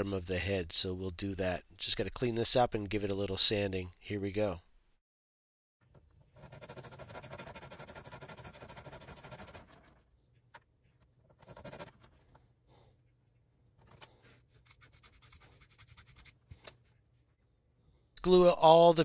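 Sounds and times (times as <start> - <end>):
hand sanding plastic: 6.2 - 10.1, 10.9 - 12.4, 13.8 - 17.3.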